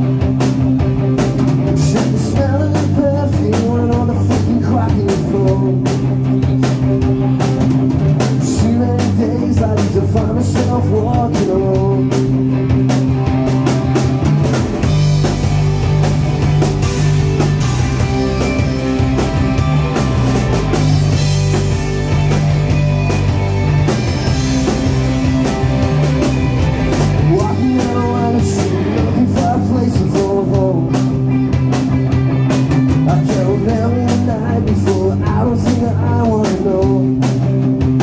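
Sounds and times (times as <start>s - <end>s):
rock band playing live: 0.0s - 38.0s.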